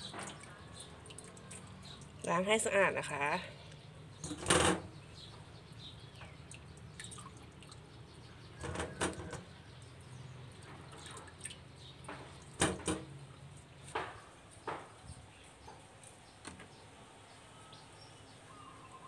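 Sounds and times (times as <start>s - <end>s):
water sloshing and dripping: 0.0s - 17.3s.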